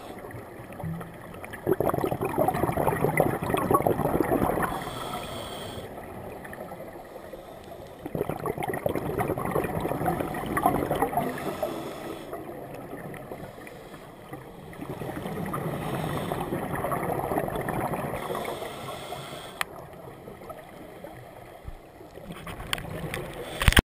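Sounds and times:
bubbles gurgling underwater: 0.0 - 4.8, 8.0 - 11.6, 14.3 - 18.5.

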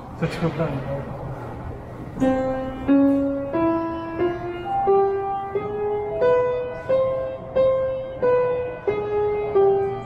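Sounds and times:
upright piano playing a scale: 2.1 - 10.0.

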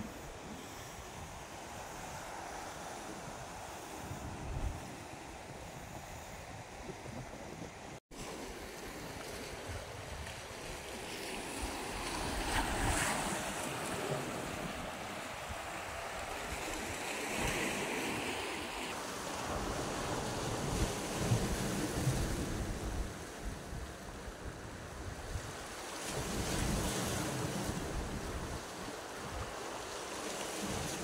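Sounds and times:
wind buffeting microphone: 0.0 - 8.0
waves lapping against rocks: 6.6 - 23.8, 25.3 - 31.0.

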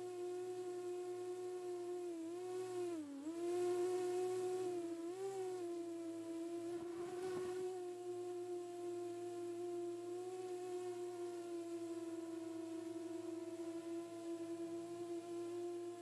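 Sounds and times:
steady humming tone: 0.0 - 16.0
scratchy rustle: 6.7 - 7.8.

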